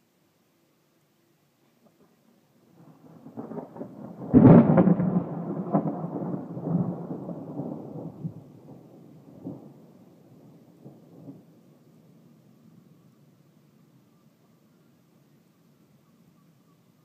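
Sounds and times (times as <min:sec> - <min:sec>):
thunder rumbling and cracking: 0:02.8 - 0:11.6.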